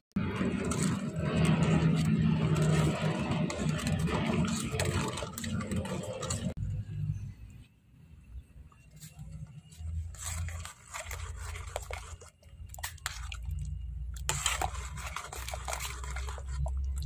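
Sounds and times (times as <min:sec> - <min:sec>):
ladle scraping a metal pot: 0:00.2 - 0:06.6, 0:09.2 - 0:17.0
steady low rumble: 0:00.2 - 0:08.4.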